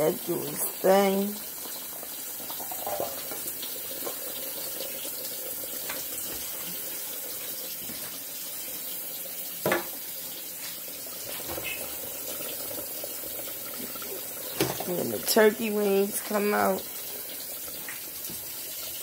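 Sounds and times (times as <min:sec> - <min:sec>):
pot simmering: 0:00.0 - 0:19.0.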